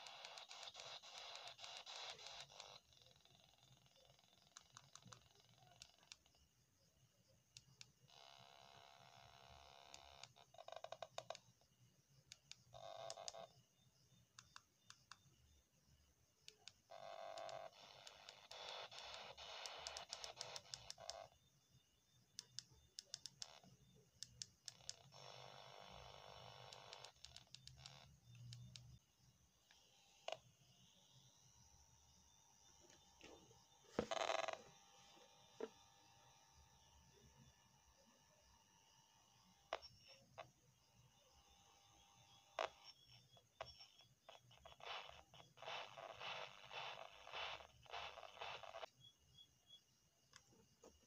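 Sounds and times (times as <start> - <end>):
radio static hiss: 0.0 - 2.9, 17.0 - 21.3, 32.8 - 35.7, 43.6 - 49.0.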